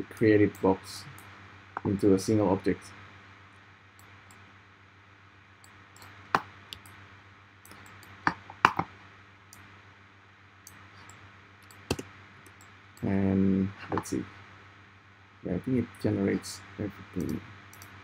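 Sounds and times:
faint steady hum: 0.0s - 18.0s
mouse and keyboard clicks: 10.7s - 12.7s.

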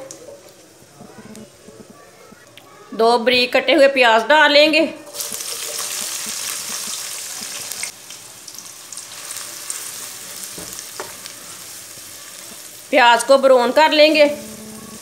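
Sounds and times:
onions sizzling in hot oil: 5.0s - 15.0s.

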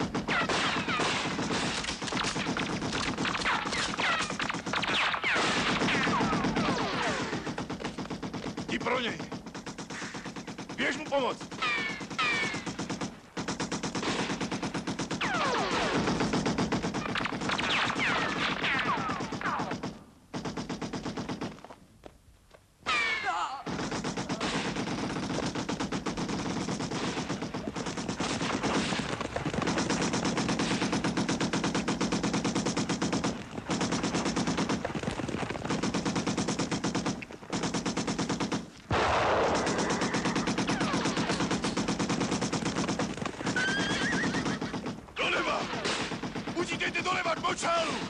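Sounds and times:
other gunfire: 23.7s - 48.0s
machine gun bursts: 39.4s - 48.0s
horses whinnying: 43.4s - 44.8s.

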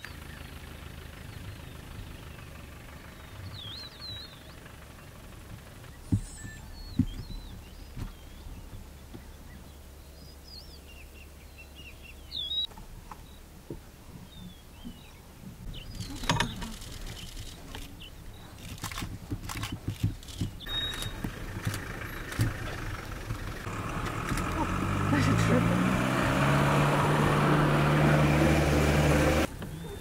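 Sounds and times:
birds chirping: 0.0s - 30.0s
scattered clicks and knocks: 18.6s - 23.4s
short curved bird calls: 19.6s - 23.7s.

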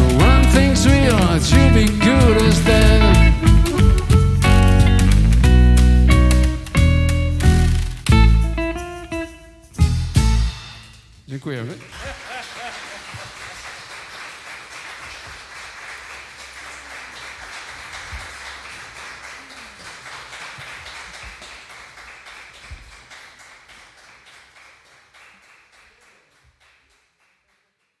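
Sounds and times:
audience applauding: 11.5s - 28.0s.

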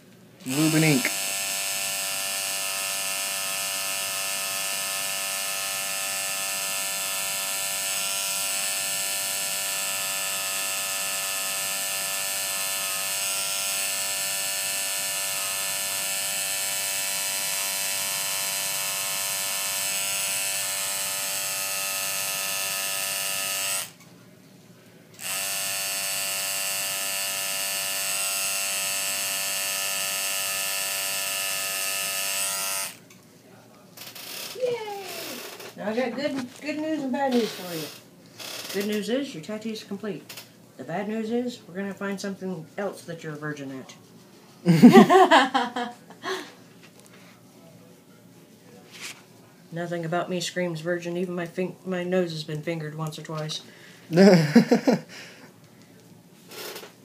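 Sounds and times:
tattoo machine buzzing: 0.5s - 24.0s, 25.2s - 33.0s, 34.0s - 34.6s, 35.2s - 35.7s, 37.3s - 39.0s, 56.5s - 56.9s.

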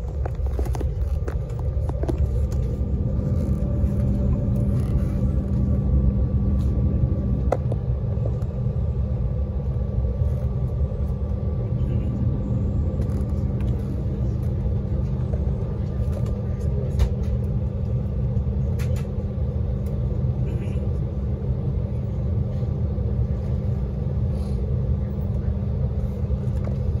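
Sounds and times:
jet engine low rumble: 0.0s - 27.0s.

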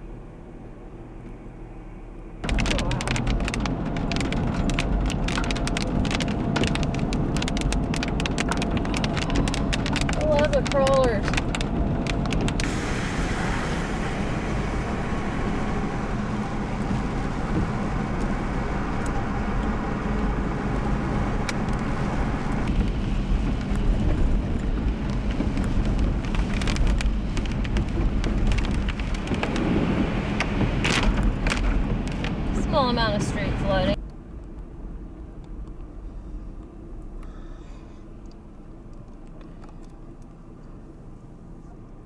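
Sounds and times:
car road and engine noise: 0.0s - 42.0s
rain hitting windshield: 2.4s - 35.9s.

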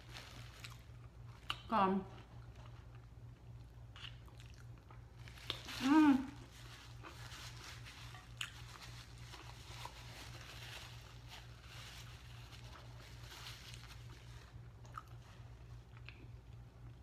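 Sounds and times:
steady low hum: 0.0s - 17.0s
chewing and mouth sounds: 0.6s - 5.8s, 8.2s - 10.0s, 14.5s - 17.0s.

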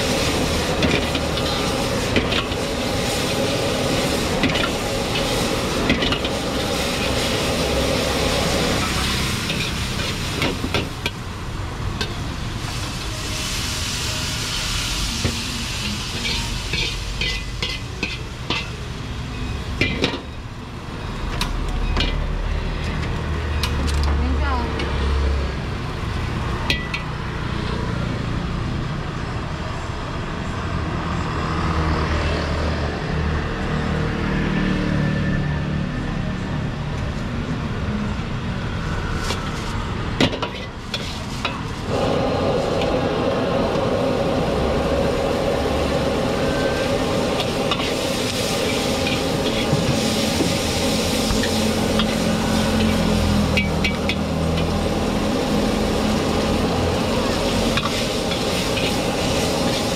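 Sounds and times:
metal ladle scraping a wok: 0.0s - 11.2s, 12.0s - 18.8s, 40.4s - 41.9s, 46.4s - 56.0s, 57.2s - 59.9s
gas burner rushing: 0.0s - 19.0s, 38.8s - 59.9s
food sizzling in a wok: 0.0s - 23.5s, 24.6s - 28.9s, 38.8s - 59.9s
metal ladle clanking on wok: 16.2s - 18.8s.

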